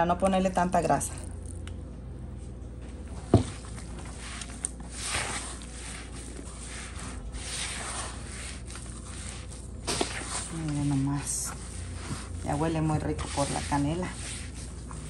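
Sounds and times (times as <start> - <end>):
hands kneading dough in a bowl: 3.1 - 15.0.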